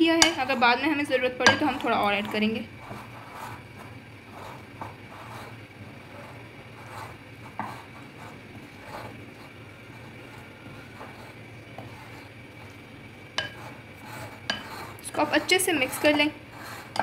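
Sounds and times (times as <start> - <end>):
faint steady hum: 0.0 - 17.0
spoon scraping glass bowl: 0.2 - 0.8, 13.4 - 17.0.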